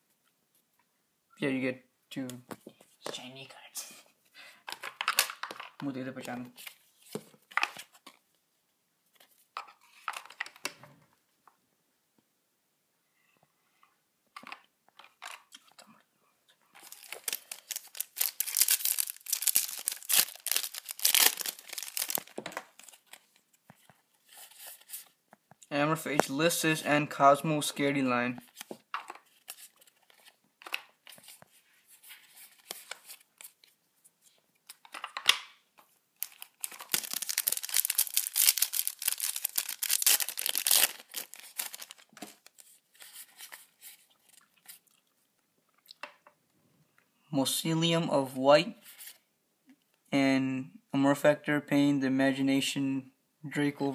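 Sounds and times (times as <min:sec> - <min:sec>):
foil wrapper crinkling: 0:16.8 - 0:23.3, 0:36.2 - 0:43.6.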